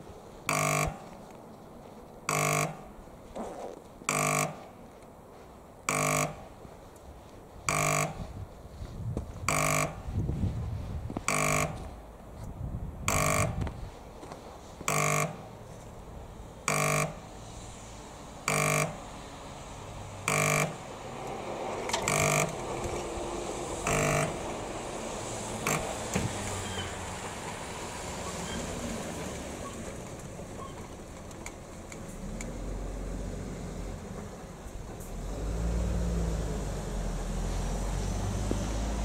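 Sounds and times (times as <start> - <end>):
steady rumbling noise: 0.0 - 28.2
level crossing hooter: 0.5 - 1.1, 2.3 - 2.8, 5.9 - 6.5, 7.7 - 8.3, 9.5 - 10.1, 14.9 - 15.5, 16.7 - 17.3, 18.5 - 19.1, 20.2 - 20.9, 22.0 - 22.7, 23.8 - 24.5.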